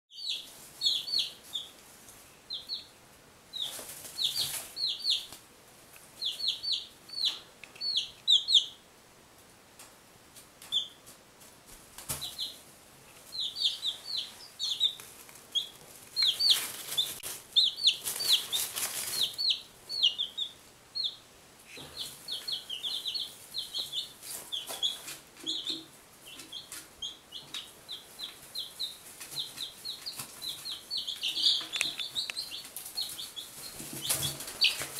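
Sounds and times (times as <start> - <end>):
chicks peeping: 0.1 - 8.9, 10.6 - 11.2, 12.0 - 34.9
rustling: 3.5 - 6.5, 9.8 - 19.6.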